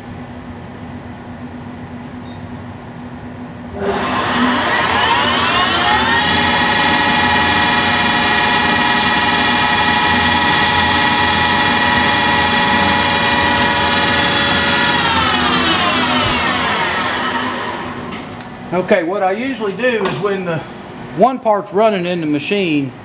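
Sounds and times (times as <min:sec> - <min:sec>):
lathe spindle whining: 0:03.7 - 0:18.5.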